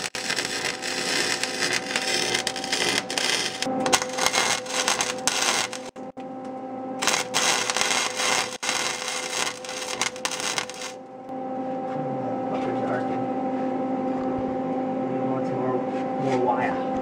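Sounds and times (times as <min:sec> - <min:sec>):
welder arc crackling: 0:00.0 - 0:06.2, 0:07.0 - 0:11.1.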